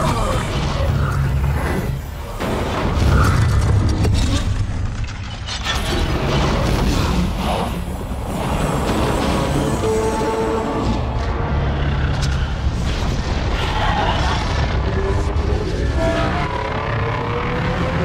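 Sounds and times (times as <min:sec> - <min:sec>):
crackling and creaking noises: 0:00.0 - 0:18.0
faint film score: 0:00.0 - 0:18.0.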